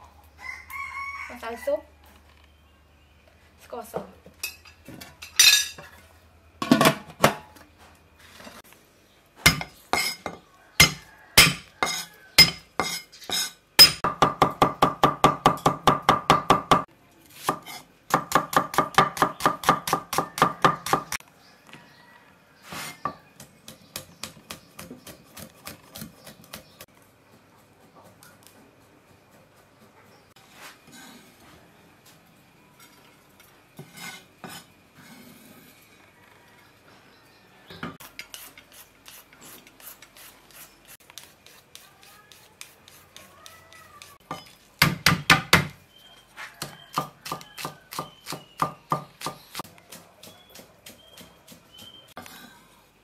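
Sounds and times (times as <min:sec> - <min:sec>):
cleaver chopping on wooden board: 0:17.5 - 0:21.2, 0:44.3 - 0:45.8, 0:46.6 - 0:51.9.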